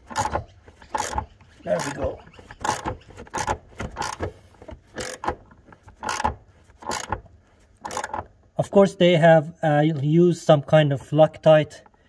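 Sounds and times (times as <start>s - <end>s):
ratchet wrench clicking: 0.0s - 2.0s, 2.6s - 4.3s, 4.9s - 7.2s, 7.8s - 8.3s.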